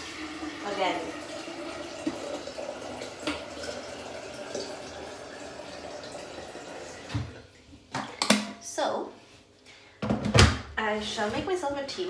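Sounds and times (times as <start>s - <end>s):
water running from tap: 0.0s - 7.5s.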